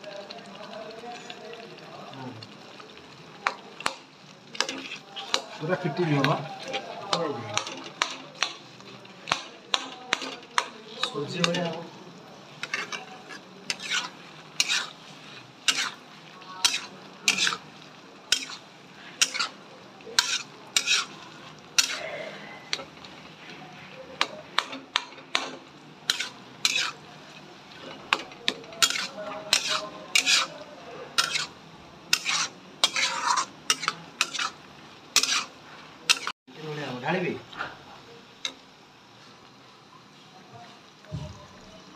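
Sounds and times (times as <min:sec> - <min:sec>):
faint oil sizzle: 0:00.0 - 0:41.9
metal spatula scraping pan: 0:03.8 - 0:36.4.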